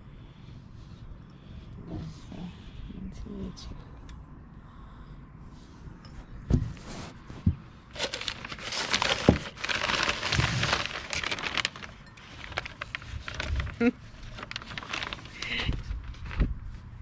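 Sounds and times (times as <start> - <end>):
paper rustling and crinkling: 6.8 - 16.8.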